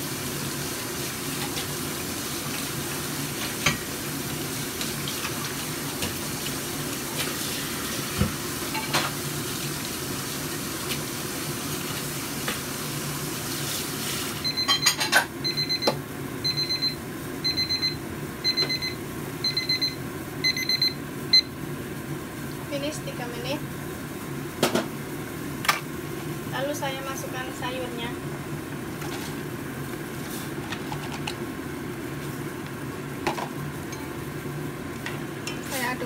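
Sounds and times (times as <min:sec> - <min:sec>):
kitchen timer beeping: 0:14.4 - 0:21.6.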